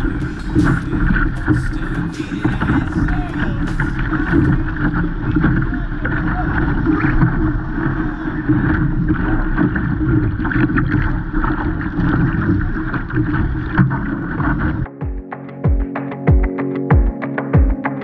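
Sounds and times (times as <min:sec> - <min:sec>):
music with steady beat: 0:00.0 - 0:04.7, 0:14.9 - 0:18.0
water splashing along hull: 0:00.0 - 0:15.0.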